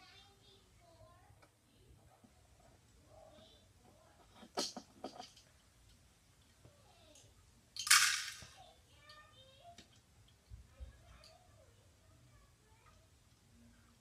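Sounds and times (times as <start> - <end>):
plastic toy parts clicking: 7.8 - 8.5.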